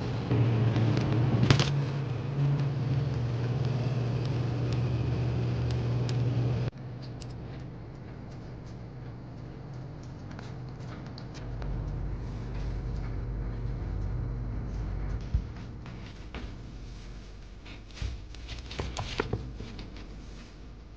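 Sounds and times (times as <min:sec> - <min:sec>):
low hum: 0:00.0 - 0:20.9.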